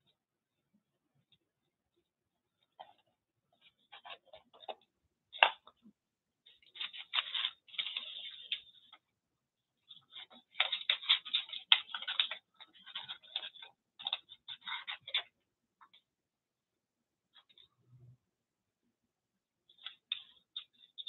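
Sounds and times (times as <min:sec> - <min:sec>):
paper rustling and crinkling: 0:02.7 - 0:04.8, 0:06.5 - 0:09.0, 0:09.8 - 0:15.4.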